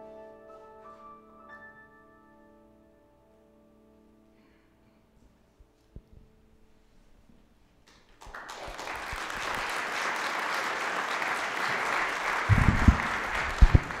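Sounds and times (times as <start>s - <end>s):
audience applauding: 7.9s - 14.0s
low thumps: 12.5s - 14.0s.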